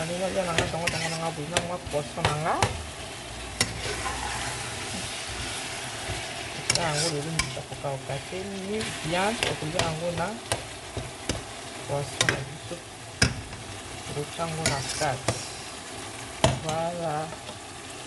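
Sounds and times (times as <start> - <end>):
vegetables sizzling in oil: 0.0 - 18.0
spoon scraping a pot: 0.5 - 2.4, 3.6 - 7.7, 14.6 - 15.4.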